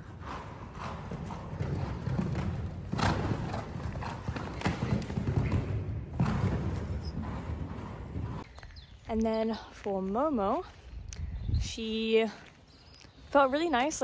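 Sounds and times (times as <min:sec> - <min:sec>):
horse hoofbeats on sand: 0:00.0 - 0:08.6.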